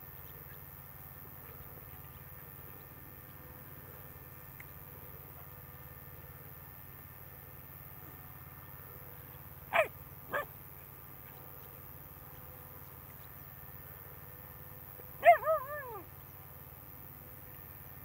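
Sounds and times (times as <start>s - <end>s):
steady low hum: 0.0s - 18.0s
dog yelping: 9.7s - 10.5s, 15.2s - 16.1s.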